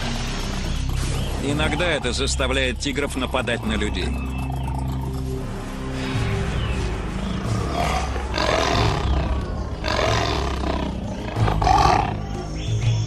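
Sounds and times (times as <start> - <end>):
background music with low tones: 0.0 - 13.0
tiger roaring: 7.5 - 12.2.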